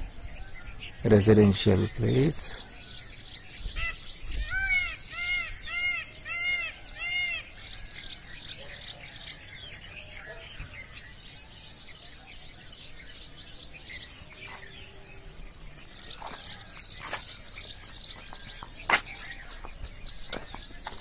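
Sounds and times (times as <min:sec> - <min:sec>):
high drone of insects: 0:00.0 - 0:21.0.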